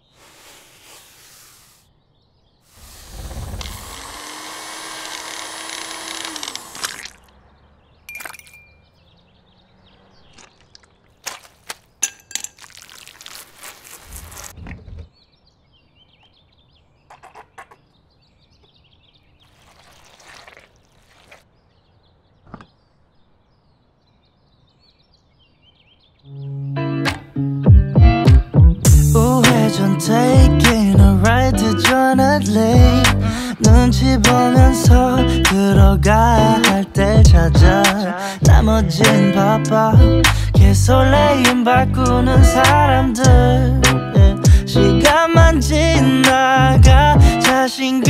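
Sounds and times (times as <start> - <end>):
electric hand mixer running: 3.6 - 7.1
liquid pouring: 19.5 - 21.4.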